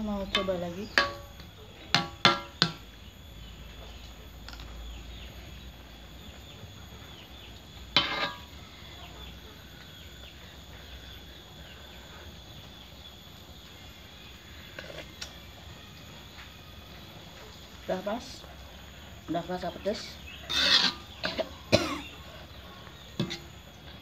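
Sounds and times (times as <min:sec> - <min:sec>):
utensils clinking on metal wok: 0:00.2 - 0:02.8, 0:08.0 - 0:08.5.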